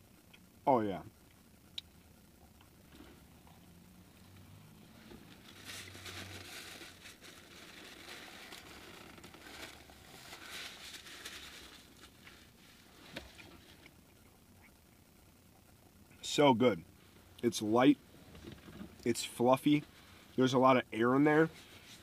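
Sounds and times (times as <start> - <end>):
paper napkin crinkling: 5.2 - 13.8.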